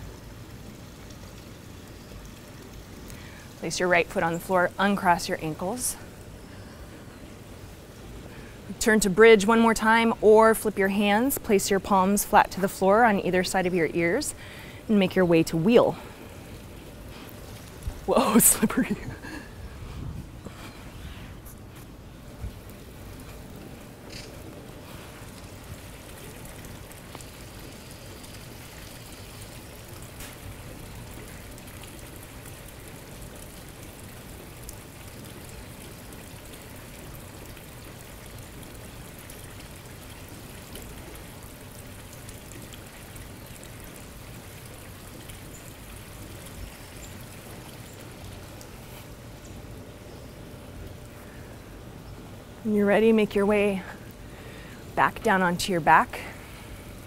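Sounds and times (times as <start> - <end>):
hiss of running water: 0.0 - 57.0
faint ticks: 3.0 - 3.3.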